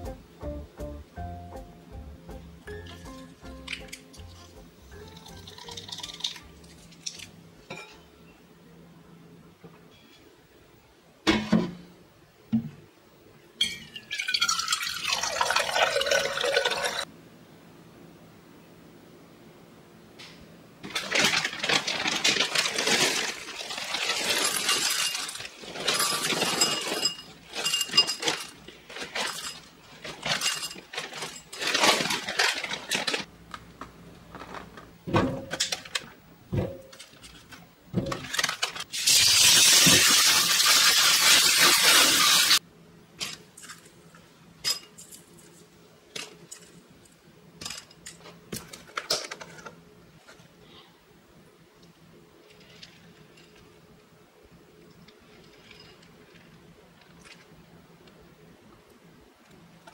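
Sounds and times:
kitchen tap running: 0:14.1 - 0:17.0, 0:39.0 - 0:42.6
cereal pouring into bowls: 0:20.9 - 0:33.3, 0:38.3 - 0:42.6.

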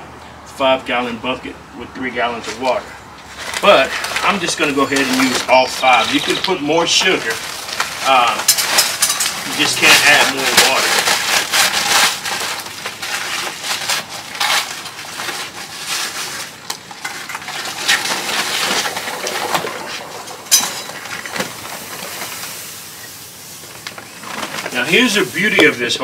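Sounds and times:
plastic bag rustling: 0:03.3 - 0:26.0
sugar pouring hiss: 0:17.5 - 0:26.0.

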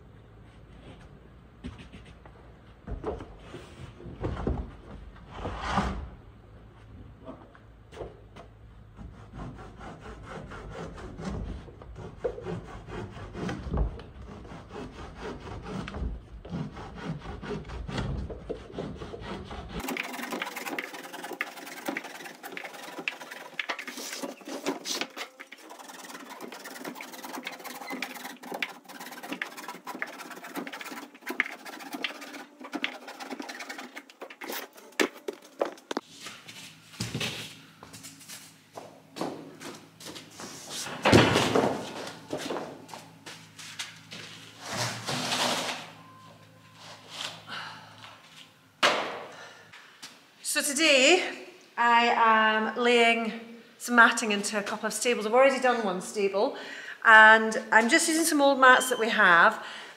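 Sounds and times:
handsaw rasping through rubber: 0:09.0 - 0:36.0.

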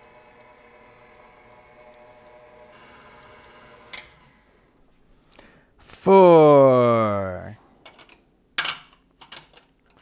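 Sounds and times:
stand mixer motor whining: 0:00.0 - 0:04.7.

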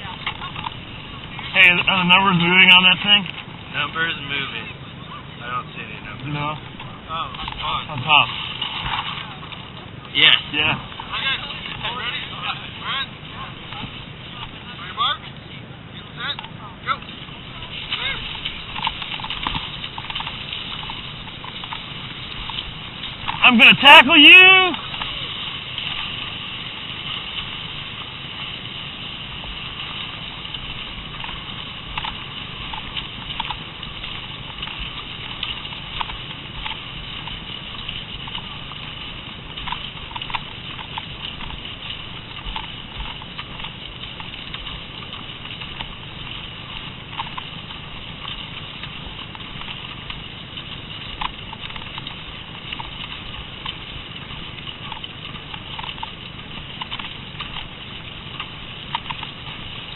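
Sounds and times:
skis sliding over snow: 0:00.0 - 0:59.9
ski poles clicking: 0:17.7 - 0:27.7, 0:29.8 - 0:50.1, 0:50.9 - 0:59.9.

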